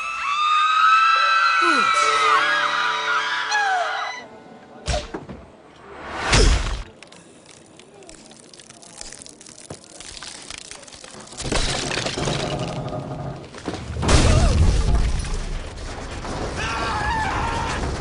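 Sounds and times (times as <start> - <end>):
cartoon breaking and shattering: 6.2 - 6.9, 8.2 - 13.2, 14.0 - 18.0.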